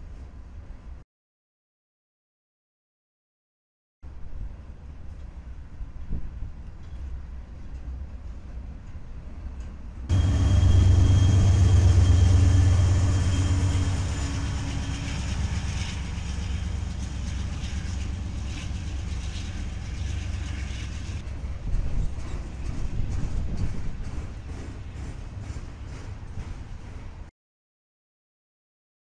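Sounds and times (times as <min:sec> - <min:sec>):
freight cars rumbling and rattling: 0:06.0 - 0:27.3
train clunks: 0:06.8 - 0:27.3
low engine drone: 0:10.1 - 0:21.2.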